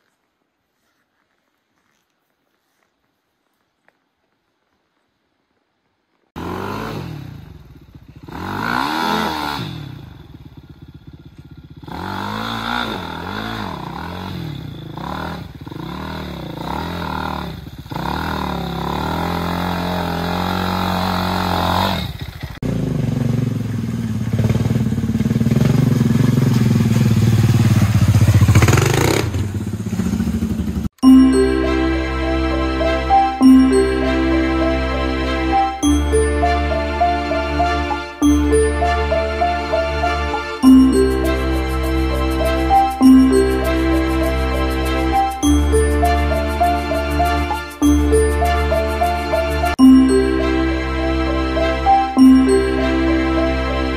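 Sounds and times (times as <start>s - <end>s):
dirt bike engine revving: 6.4s - 31.6s.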